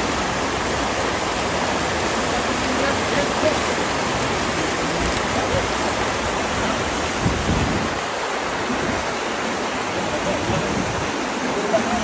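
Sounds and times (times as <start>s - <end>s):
whitewater rushing through channel: 0.0s - 12.0s.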